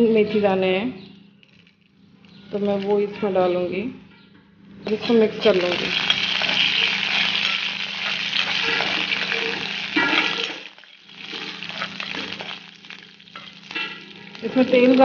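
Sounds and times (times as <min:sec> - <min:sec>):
spices sizzling in hot oil: 0:04.9 - 0:15.0
steel spoon scraping pan: 0:05.6 - 0:14.3.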